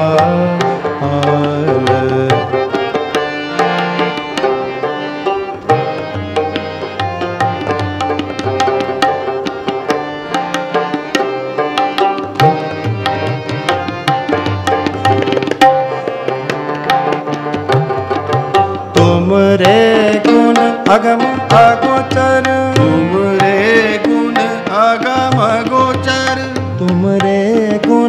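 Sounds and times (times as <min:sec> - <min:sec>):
hand drums playing: 0:00.0 - 0:28.0
harmonium sustained notes: 0:00.0 - 0:28.0
rabab playing: 0:00.0 - 0:28.0.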